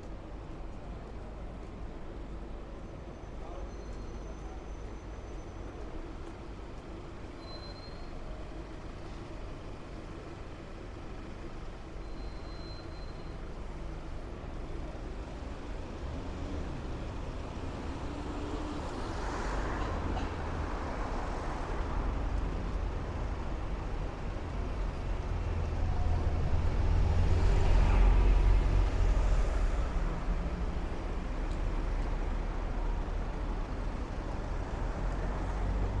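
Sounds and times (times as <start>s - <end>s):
vehicles passing: 14.4s - 36.0s.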